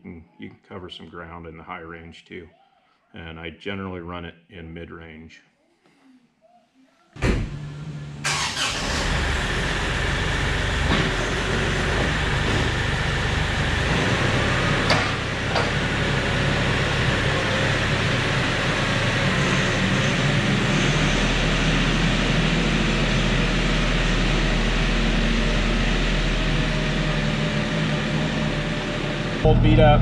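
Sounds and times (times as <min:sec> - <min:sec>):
tractor diesel engine running: 0:07.7 - 0:30.0.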